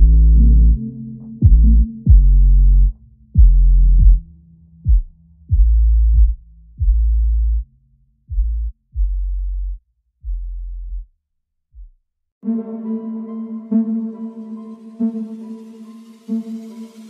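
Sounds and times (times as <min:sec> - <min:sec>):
electronic music deep bass notes: 0:00.0 - 0:11.1.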